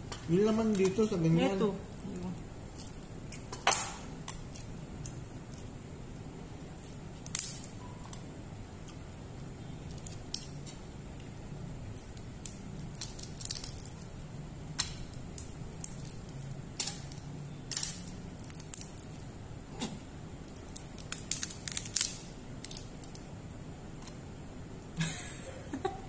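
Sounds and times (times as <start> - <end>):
faint steady hum: 0.0 - 26.0
crab shell cracking: 11.9 - 14.1, 14.8 - 19.2, 20.5 - 23.3.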